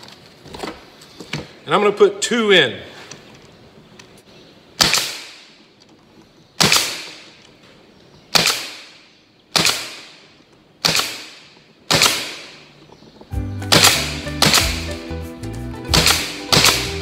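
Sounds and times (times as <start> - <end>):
pneumatic stapler firing: 4.8 - 5.5, 10.8 - 12.6, 13.7 - 15.0, 15.9 - 17.0.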